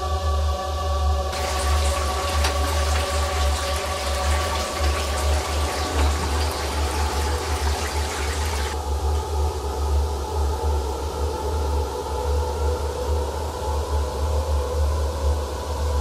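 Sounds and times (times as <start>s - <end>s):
low droning music: 0.0s - 16.0s
rushing hiss with crackles: 1.3s - 8.8s.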